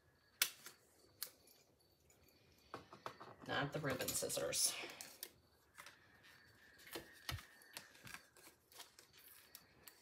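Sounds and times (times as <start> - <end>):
paper rustling and clicks: 6.8 - 10.0.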